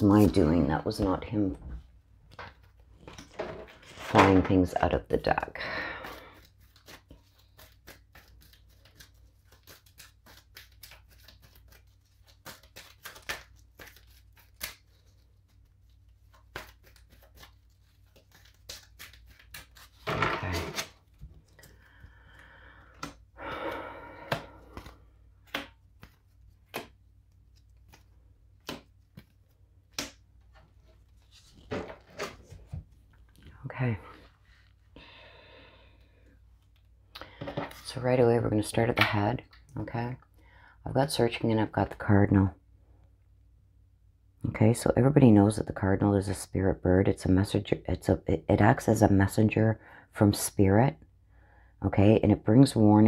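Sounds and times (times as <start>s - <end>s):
cards being shuffled: 6.0s - 23.3s, 24.3s - 33.6s.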